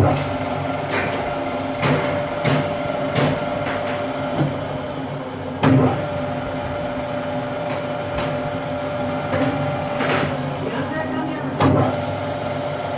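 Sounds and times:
metal lathe running: 9.0 - 12.9.

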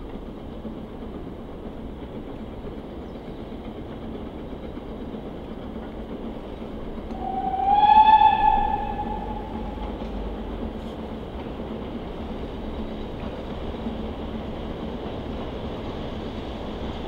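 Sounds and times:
steady rumble: 6.3 - 13.0
steam locomotive whistle: 7.1 - 10.3.

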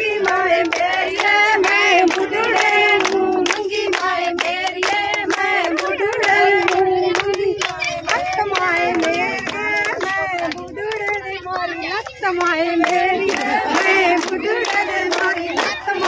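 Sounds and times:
rhythmic hand clapping: 0.0 - 16.0
women singing: 0.0 - 16.0.

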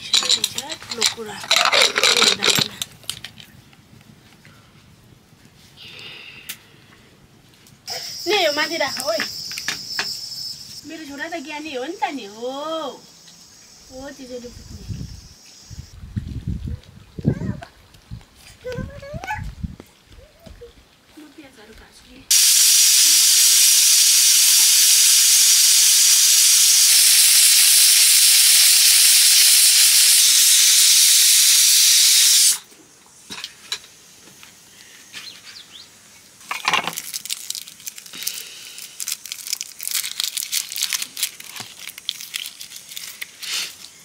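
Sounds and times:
pressure cooker venting steam: 22.3 - 32.7.

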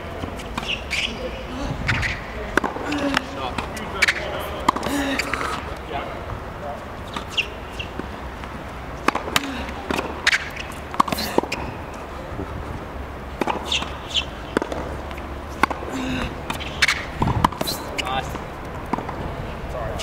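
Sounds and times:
tennis ball bouncing: 0.0 - 1.2, 1.8 - 5.9, 6.9 - 19.7
racket striking tennis ball: 0.1 - 1.2, 1.8 - 5.8, 7.0 - 12.1, 13.3 - 19.2.

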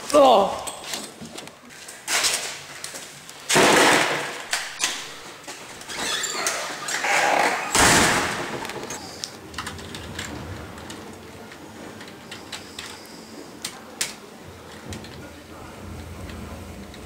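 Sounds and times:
door banging: 6.0 - 8.8.

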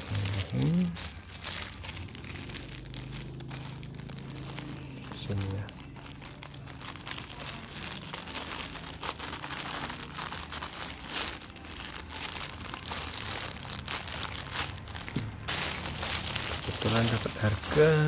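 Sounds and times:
plastic crinkling: 0.0 - 18.0
scissors cutting plastic bag: 0.0 - 18.0.

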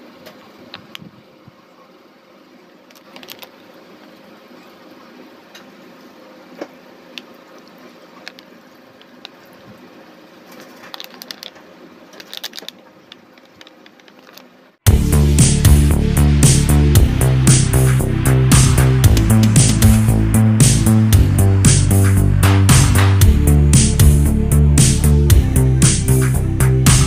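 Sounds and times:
steady background hum: 0.0 - 27.0
plastic packet crinkling: 2.9 - 3.7, 10.5 - 14.5
granules falling into pot: 10.5 - 14.5.

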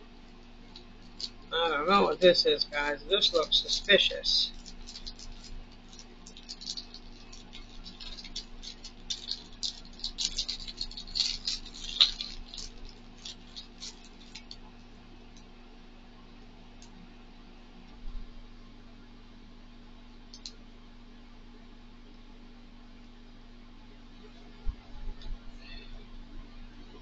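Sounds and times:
plastic packaging crinkling: 0.3 - 14.7.

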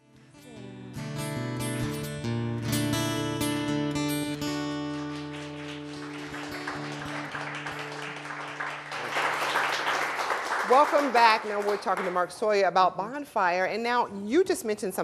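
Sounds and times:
acoustic guitar strumming: 0.0 - 9.1.

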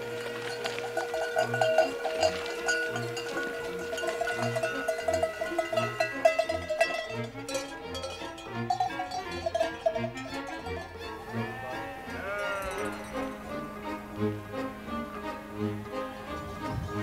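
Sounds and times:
sheep bells clanking: 0.0 - 15.4.

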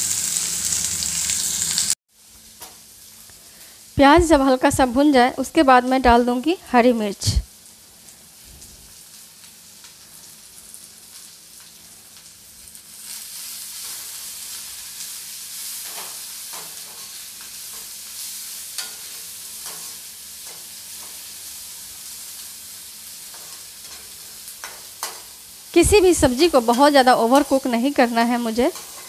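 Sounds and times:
onion sizzling in oil: 0.0 - 29.0
metal spoon scraping pan: 18.8 - 19.9.

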